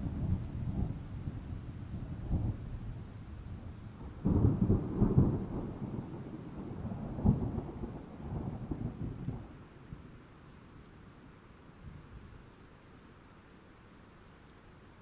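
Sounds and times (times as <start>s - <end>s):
thunder clap and rumble: 0.0s - 9.5s.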